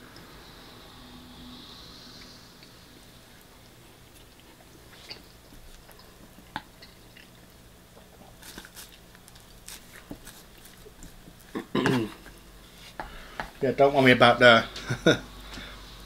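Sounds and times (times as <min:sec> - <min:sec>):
person chewing food: 0:03.5 - 0:13.4.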